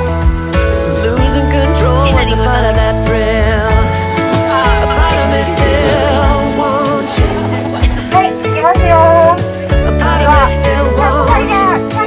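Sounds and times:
music with wavering melody: 0.0s - 12.0s.

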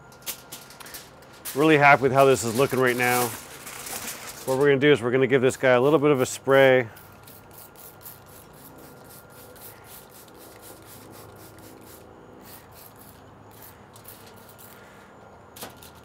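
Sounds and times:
faint steady hum: 0.0s - 16.0s
spray bottle spritzing: 7.0s - 14.8s.

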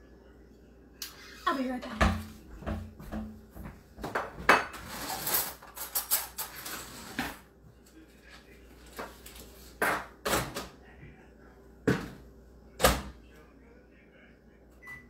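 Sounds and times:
dishes and utensils clinking: 4.0s - 7.3s.

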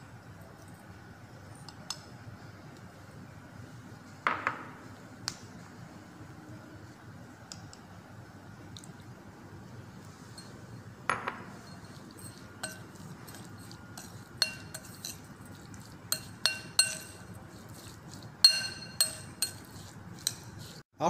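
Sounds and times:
metal spoon clinking glass bowl: 10.3s - 20.7s.

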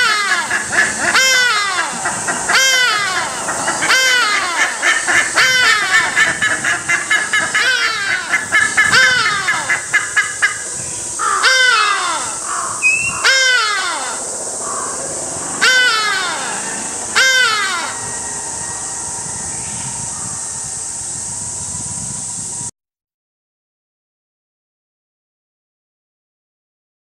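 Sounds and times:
other ibises calling: 0.0s - 21.2s
ibis calling loudly: 0.0s - 21.6s.

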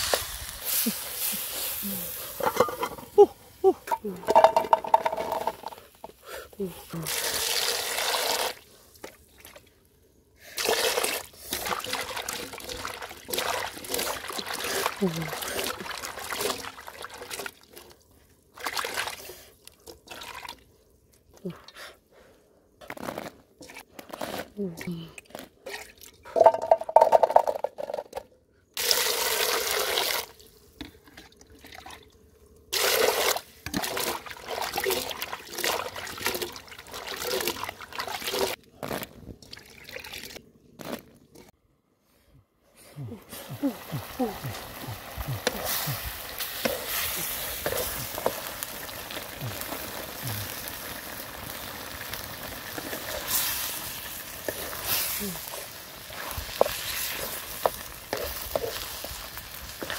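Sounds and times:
water pouring into pot: 10.6s - 17.6s, 32.7s - 38.6s, 43.6s - 59.9s
water pouring into metal pot: 32.7s - 38.6s
hands sloshing vegetables in water: 32.8s - 40.4s.

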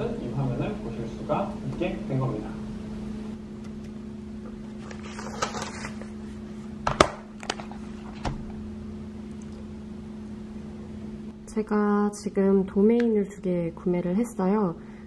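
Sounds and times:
low electrical hum: 0.0s - 15.0s
notebook paper rustling: 4.7s - 6.2s.

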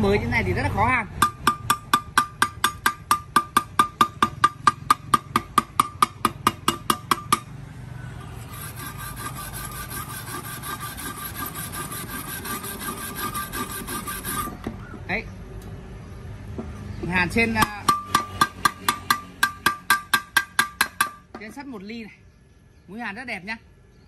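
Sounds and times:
chipping hammer tapping steel: 1.2s - 7.5s
wire brush scrubbing metal: 8.2s - 14.6s.

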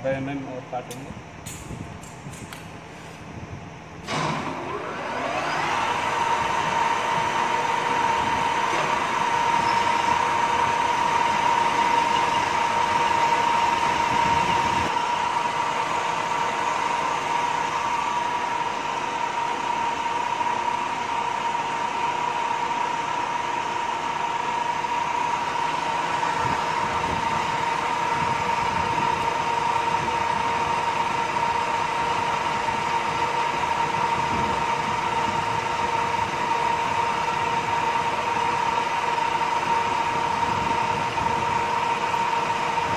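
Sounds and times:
high whine of spindle drive: 0.0s - 42.9s
lathe turning metal: 4.1s - 14.3s.

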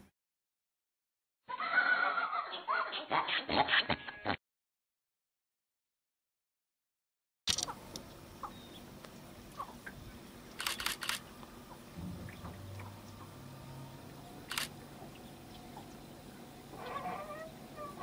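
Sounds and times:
camera shutter clicks: 7.5s - 7.7s, 10.6s - 11.2s, 14.5s - 14.7s.

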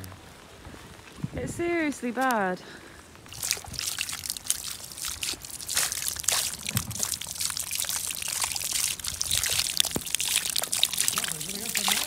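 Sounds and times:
rainwater splashing onto stone: 3.2s - 12.0s.

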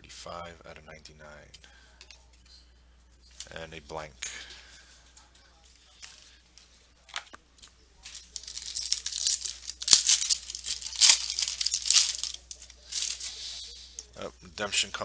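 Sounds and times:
foil wrapper ripping and crinkling: 8.0s - 13.5s.

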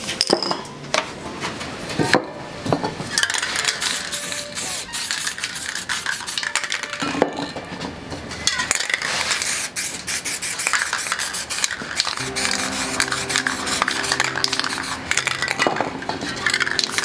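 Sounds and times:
spray paint can hissing: 3.4s - 7.0s, 9.2s - 15.5s
soft background music: 12.2s - 17.0s.

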